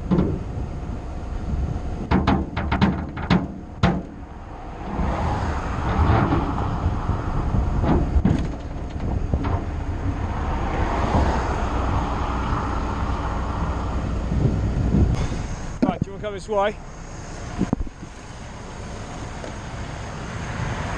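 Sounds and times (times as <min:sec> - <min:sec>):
low traffic rumble: 0:00.0 - 0:20.9
sharp knocks: 0:02.0 - 0:04.2, 0:07.8 - 0:09.8
cars swishing by: 0:04.0 - 0:20.9.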